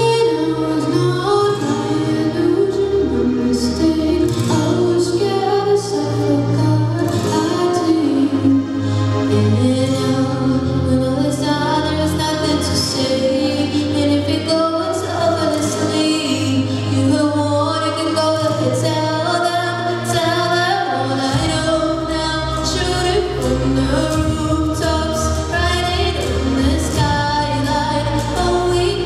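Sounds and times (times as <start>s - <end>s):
woman singing pop: 0.0s - 29.0s
deep bass line: 18.6s - 29.0s.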